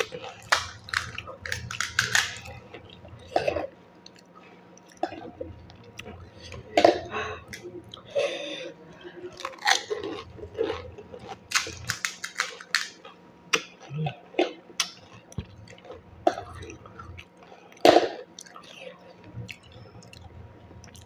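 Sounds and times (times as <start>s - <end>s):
chewing: 0.0s - 8.2s, 9.0s - 21.0s
crisp shells crackling: 0.1s - 2.7s, 9.4s - 13.0s.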